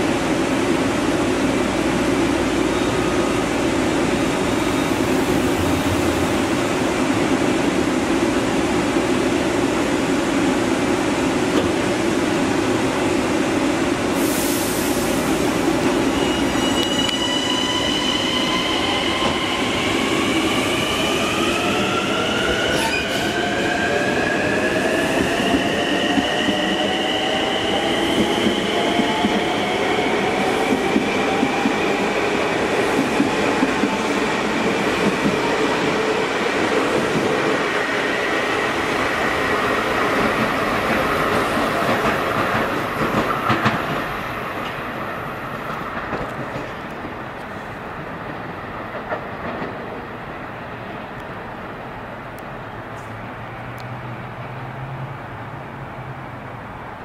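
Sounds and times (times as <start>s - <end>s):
wheels rumbling on rail: 3.4s - 12.0s, 38.6s - 44.9s.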